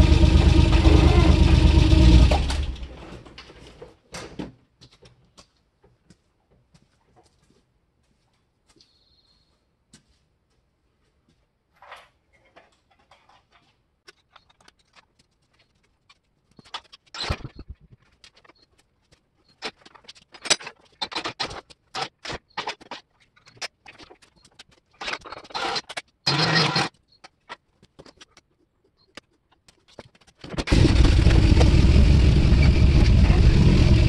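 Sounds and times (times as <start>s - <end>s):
chain hoist clanking and rattling: 19.6s - 26.9s.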